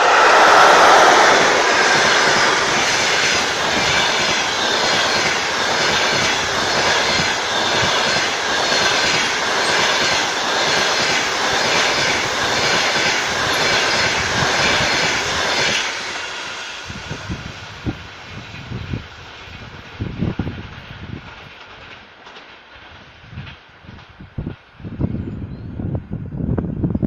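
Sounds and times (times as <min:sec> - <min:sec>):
train wheels on rails rushing past: 0:00.0 - 0:26.6.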